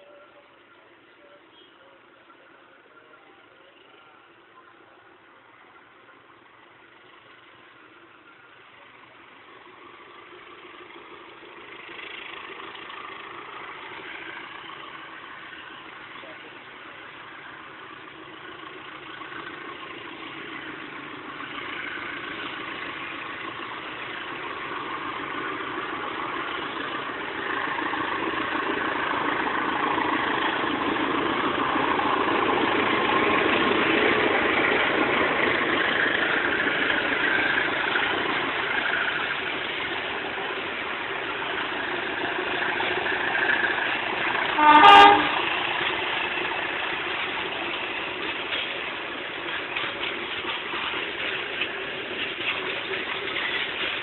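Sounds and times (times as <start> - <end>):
diesel locomotive passing: 0.0 - 54.0
train horn blast: 44.5 - 45.6.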